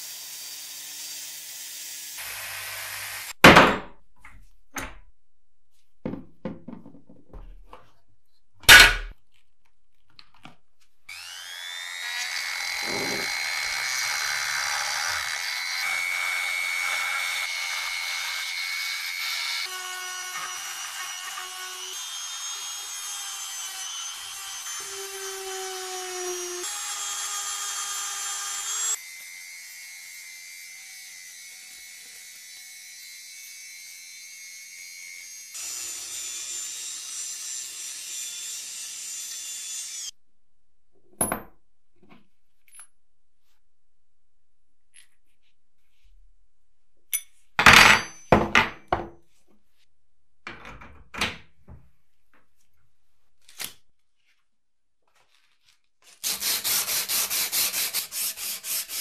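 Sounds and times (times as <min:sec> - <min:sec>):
rotary tool sanding metal: 0:11.1 - 0:40.1, 0:56.1 - 0:59.0.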